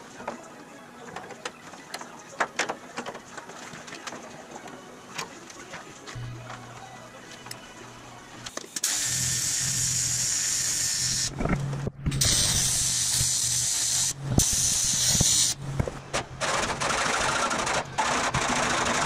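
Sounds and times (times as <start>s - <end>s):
welding arc buzzing hiss: 8.5s - 16.6s.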